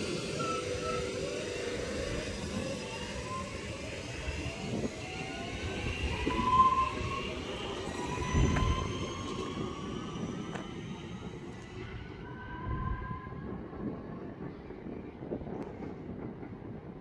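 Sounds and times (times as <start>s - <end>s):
electric train motor whine: 0.0s - 13.0s
low rumble of train: 0.0s - 17.0s.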